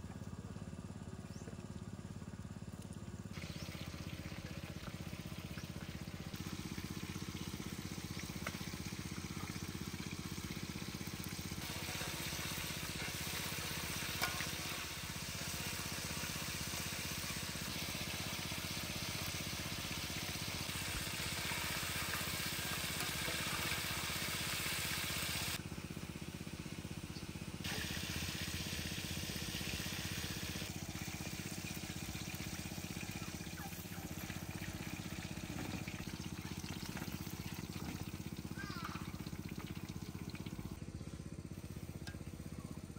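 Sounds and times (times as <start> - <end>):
oil sizzling and bubbling: 3.3 - 42.9.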